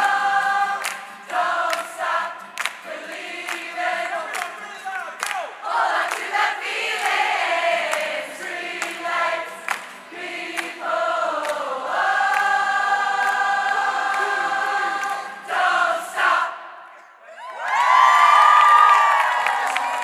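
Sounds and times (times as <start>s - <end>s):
crowd singing unaccompanied: 0.0s - 4.6s, 5.6s - 16.9s.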